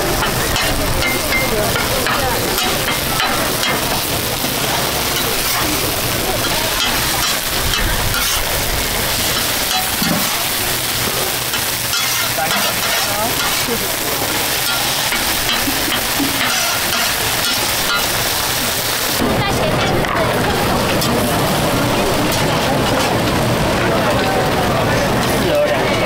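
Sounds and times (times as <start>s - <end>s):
omelettes sizzling on a griddle: 0.0s - 26.0s
metal spatula scraping and clacking: 0.1s - 18.9s.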